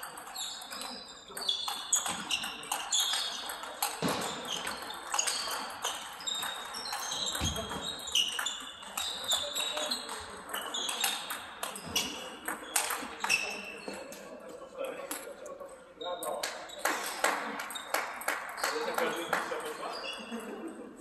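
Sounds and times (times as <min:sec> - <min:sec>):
table tennis balls clicking: 0:00.0 - 0:14.2.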